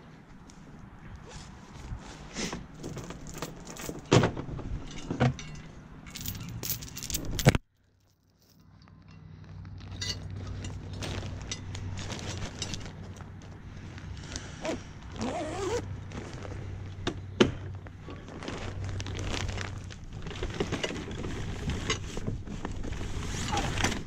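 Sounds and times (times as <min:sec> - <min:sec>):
metal chain clinking and rattling: 0:02.8 - 0:04.1, 0:04.8 - 0:09.2, 0:09.8 - 0:13.0.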